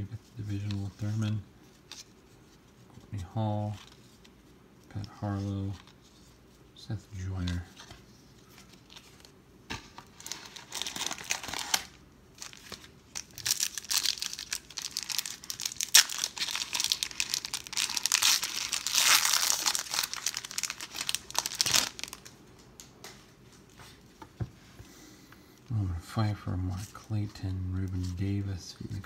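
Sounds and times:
foil pack crinkling and tearing: 10.0s - 22.3s.

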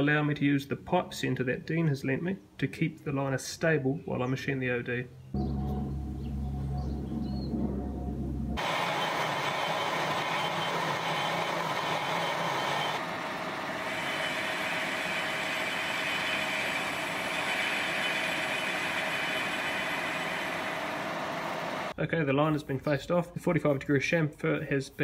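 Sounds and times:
metal lathe cutting: 8.6s - 21.9s.

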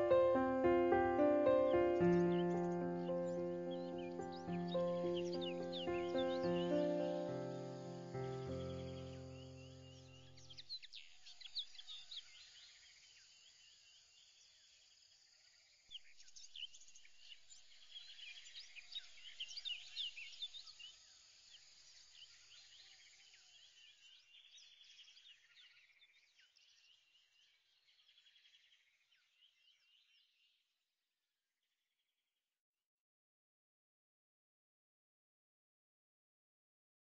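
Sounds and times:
rapid pulsed bird trills: 0.0s - 12.4s
birds chirping and whistling: 1.2s - 10.1s.

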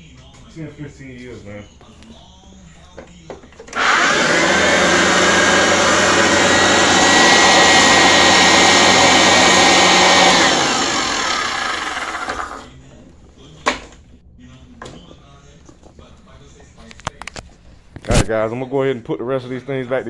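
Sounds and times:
upright vacuum cleaner motor whine: 3.7s - 12.7s.

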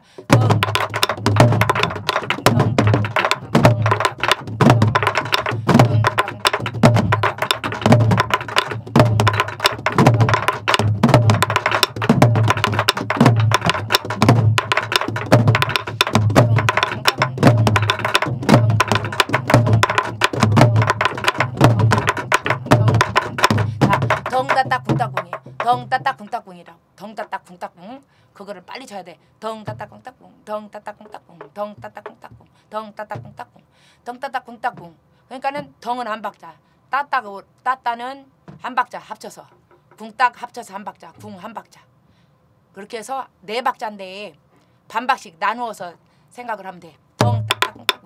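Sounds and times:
stick clacks on wooden drum shells: 0.3s - 25.7s.

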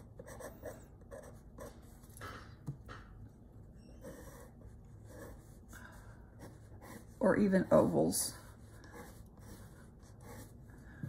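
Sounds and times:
pencil scratching on paper: 0.0s - 2.0s, 3.8s - 5.7s, 6.3s - 10.6s.

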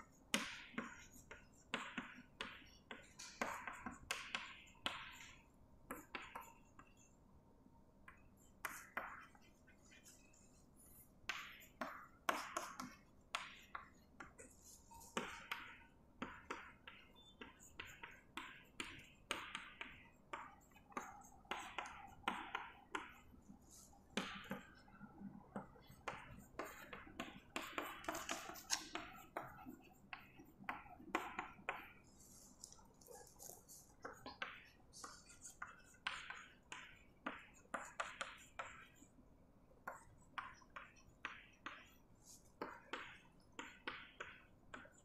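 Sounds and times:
chalk tapping and scratching: 0.0s - 7.2s, 8.0s - 39.2s, 39.8s - 45.0s.

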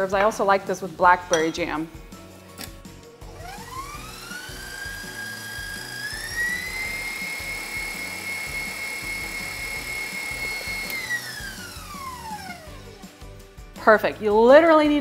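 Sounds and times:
stand mixer motor whine: 3.2s - 13.2s.

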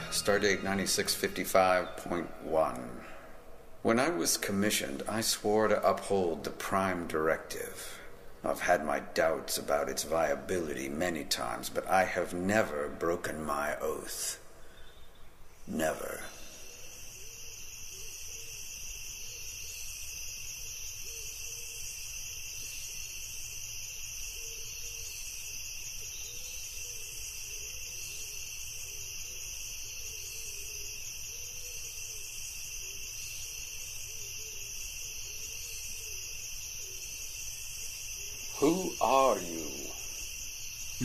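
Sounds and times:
faint wavering low tone: 0.0s - 3.1s
crickets trilling: 0.0s - 41.0s.

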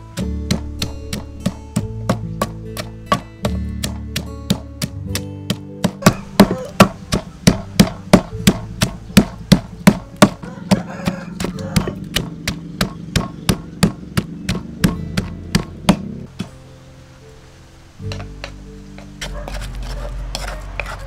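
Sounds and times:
wooden pestle pounding in mortar: 0.2s - 16.5s.

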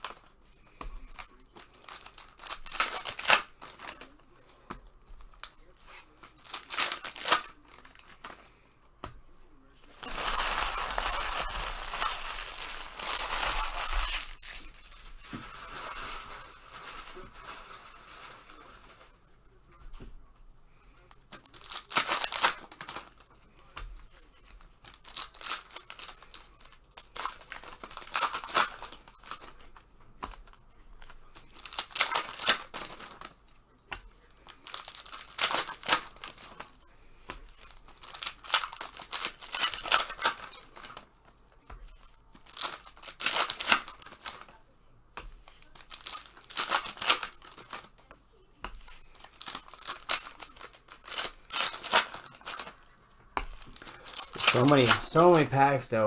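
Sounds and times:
wrappers crinkling: 0.0s - 8.5s, 9.6s - 19.3s, 21.0s - 44.6s, 45.2s - 56.0s
packaging being torn: 1.1s - 4.4s, 5.3s - 8.4s, 9.9s - 17.9s, 21.3s - 23.3s, 24.6s - 33.4s, 34.3s - 36.8s, 37.5s - 41.1s, 42.4s - 44.6s, 45.6s - 48.0s, 48.9s - 52.9s, 53.5s - 55.4s.

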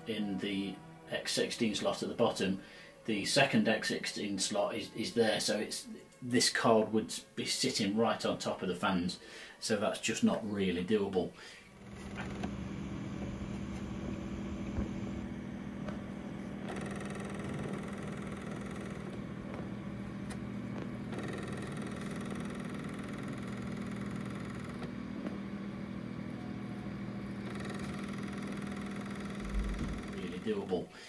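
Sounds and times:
computer cooling fans humming: 11.6s - 30.9s.

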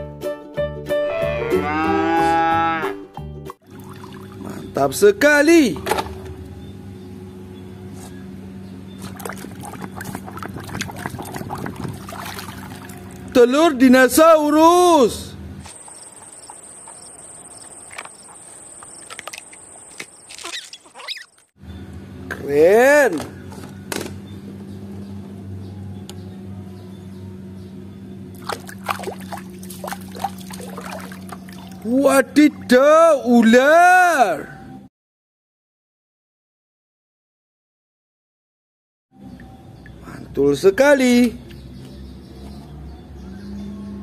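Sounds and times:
hand splashing through water: 9.0s - 13.2s, 28.4s - 31.9s.

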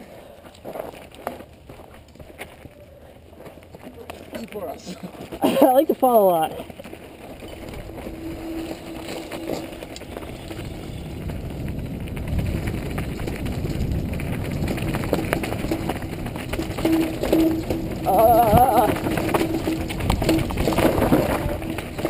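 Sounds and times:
bike tyres rolling over dirt: 0.0s - 22.0s
bike chain and frame rattling: 5.0s - 22.0s
wind buffeting microphone: 6.6s - 22.0s.

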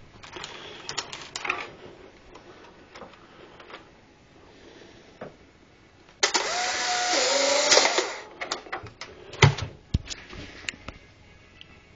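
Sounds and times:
camera motor whirring: 6.2s - 8.2s.

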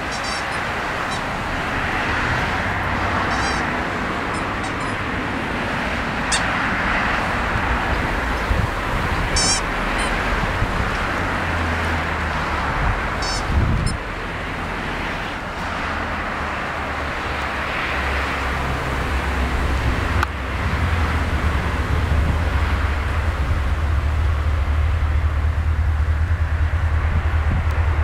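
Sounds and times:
short high squeak: 0.0s - 1.3s, 3.3s - 3.7s, 4.3s - 5.0s, 6.2s - 6.6s, 9.4s - 10.2s, 13.2s - 14.0s
outdoor rumble and hiss: 0.0s - 28.0s.

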